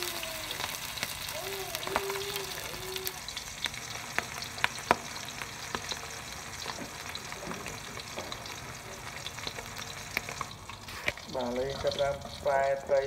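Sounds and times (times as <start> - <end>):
fish sizzling in oil: 0.0 - 13.0.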